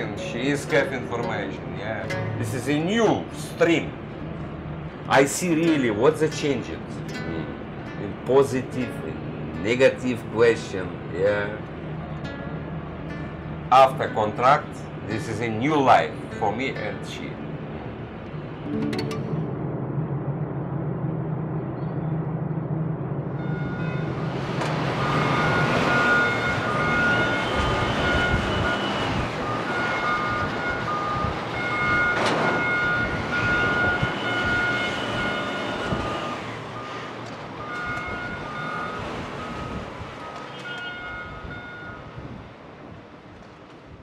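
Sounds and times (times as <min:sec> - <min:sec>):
machinery hum: 0:17.2 - 0:29.6
electronic warning alarm beeping: 0:24.9 - 0:37.0, 0:37.6 - 0:42.1.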